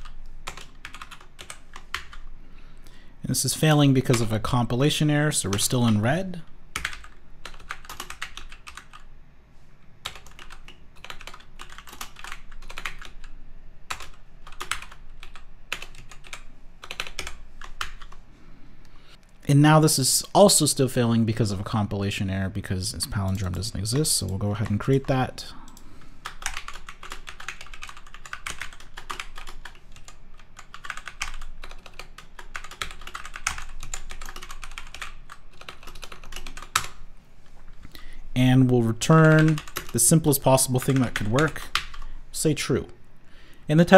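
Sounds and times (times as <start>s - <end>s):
typing on a computer keyboard: 0.0s - 2.3s, 6.8s - 9.1s, 10.0s - 18.2s, 25.7s - 37.0s, 39.3s - 40.0s.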